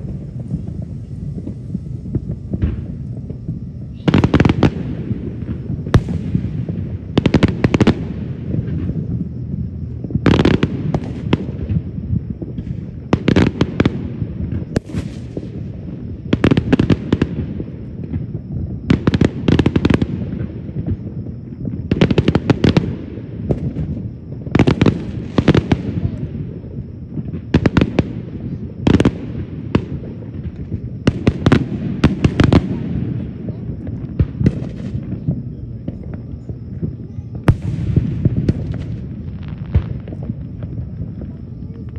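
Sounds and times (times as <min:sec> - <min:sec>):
low rumble: 0:00.0 - 0:07.2
fireworks bursting with bangs: 0:00.0 - 0:41.9.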